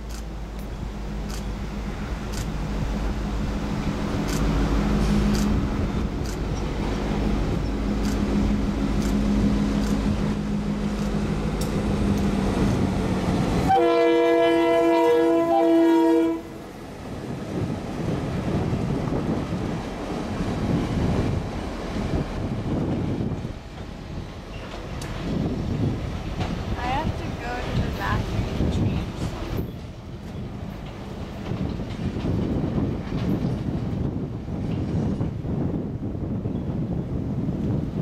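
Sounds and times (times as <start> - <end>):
diesel locomotive engine drone: 0.0 - 38.0
train wheels rumbling: 0.0 - 38.0
train horn: 13.6 - 16.6.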